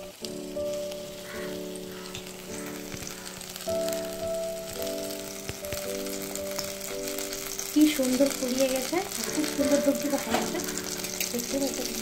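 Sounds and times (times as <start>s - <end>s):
background music: 0.0s - 12.0s
batter deep-frying in oil: 0.0s - 12.0s.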